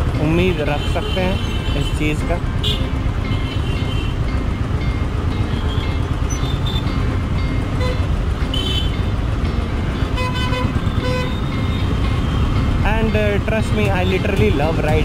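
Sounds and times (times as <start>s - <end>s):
motorcycle engine rumbling: 0.0s - 15.0s
vehicle horns tooting: 0.5s - 4.2s, 5.5s - 7.0s, 7.7s - 9.1s, 10.1s - 12.5s.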